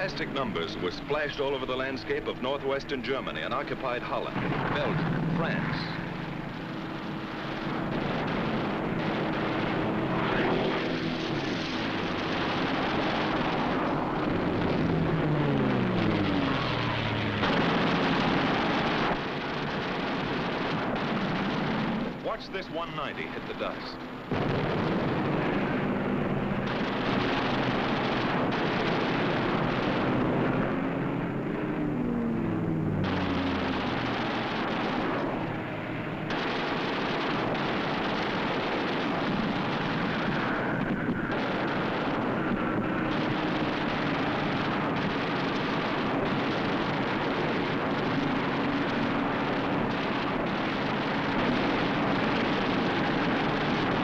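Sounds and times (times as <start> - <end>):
explosions: 0.0 - 54.0
propeller fighter aircraft engine: 0.0 - 54.0
gunfire: 17.4 - 30.9, 33.0 - 54.0.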